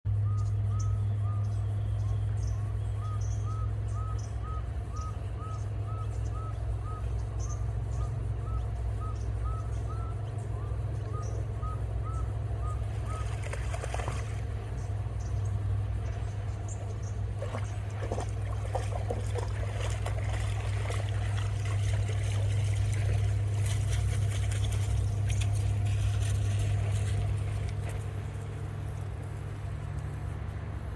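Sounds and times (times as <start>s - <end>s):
steady low hum: 0.1s - 30.9s
dog splashing through water: 12.9s - 14.6s, 17.3s - 29.3s.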